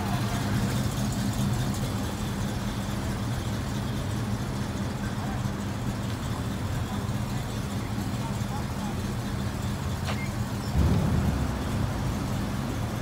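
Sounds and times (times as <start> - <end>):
car engines idling: 0.0 - 13.0.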